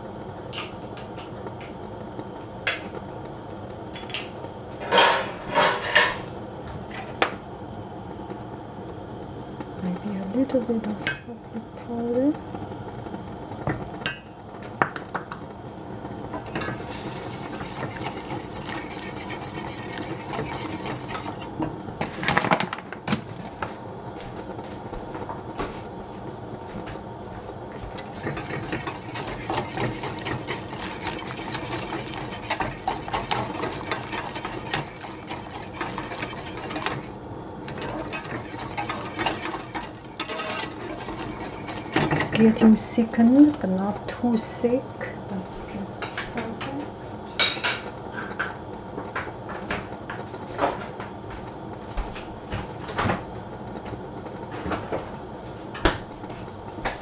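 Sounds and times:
whisk scraping metal saucepan: 16.3s - 21.7s, 27.9s - 43.2s.

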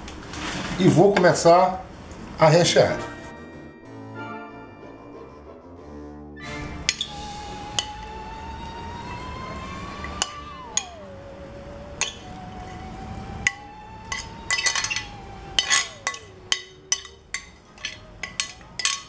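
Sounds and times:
faint rising and falling tone: 3.0s - 18.8s
utensil clinking against glass bowl: 13.5s - 19.0s.

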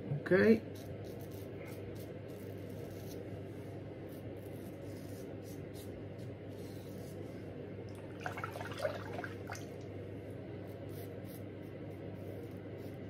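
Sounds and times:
razor shaving stubble: 0.7s - 3.3s.

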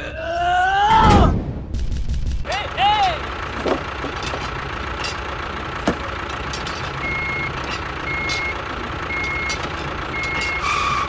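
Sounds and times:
engine running: 1.8s - 11.0s
reversing alarm beeping: 7.0s - 11.0s.

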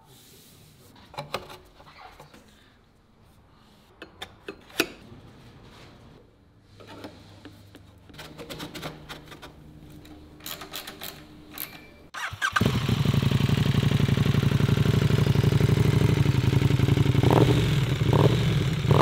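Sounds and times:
motorcycle engine running loud: 12.6s - 19.0s.

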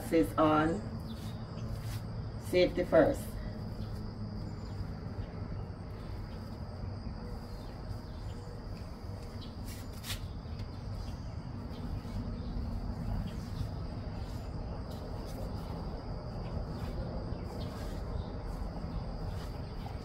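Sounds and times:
insects chirring: 0.6s - 20.0s
low background rumble: 10.3s - 20.0s.

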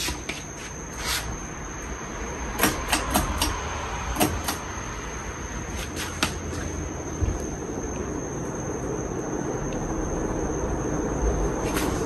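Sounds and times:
ceiling fan whirring: 0.0s - 12.0s
thin high whine: 0.0s - 12.0s.

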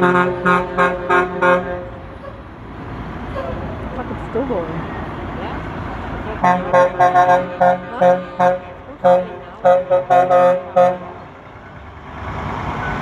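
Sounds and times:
truck horn short blasts: 0.0s - 2.0s, 6.4s - 11.2s
passing vehicle engine and road noise: 0.0s - 13.0s.

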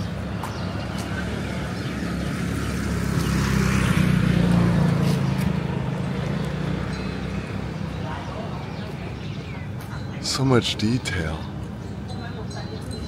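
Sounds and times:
vehicle engine passing by: 0.6s - 8.6s.

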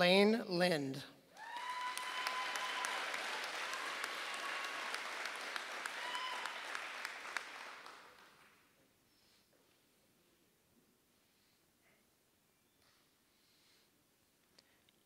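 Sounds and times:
audience applauding: 1.4s - 8.6s.

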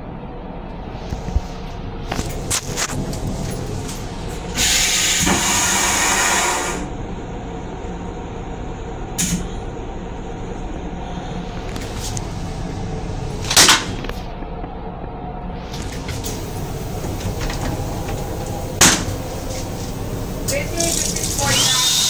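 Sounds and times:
railcar low rumble: 0.0s - 21.6s
toilet flush whoosh: 4.4s - 6.9s, 15.6s - 22.0s.

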